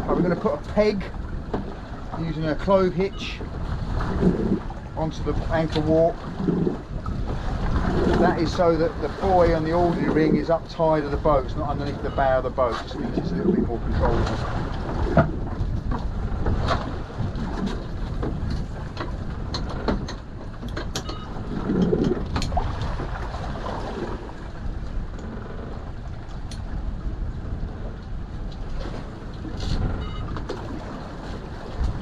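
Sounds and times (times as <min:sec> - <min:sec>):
motor boat engine running: 0:00.0 - 0:12.2, 0:12.8 - 0:32.0
water noise: 0:00.0 - 0:32.0
wind: 0:00.0 - 0:32.0
light clicks and knocks: 0:17.6 - 0:22.6.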